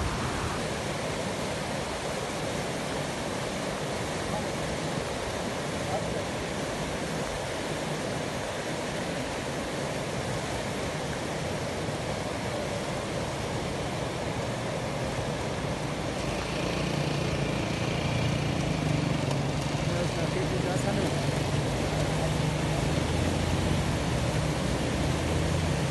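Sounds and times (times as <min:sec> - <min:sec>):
outdoor rushing noise: 0:00.0 - 0:01.9
motorcycle engine passing: 0:16.2 - 0:24.2.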